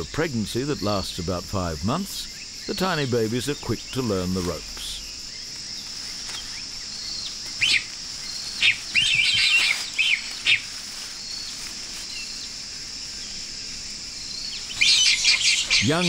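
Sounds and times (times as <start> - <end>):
high insect drone: 0.0 - 16.0
sharp bird chirps: 4.9 - 12.4, 14.3 - 16.0.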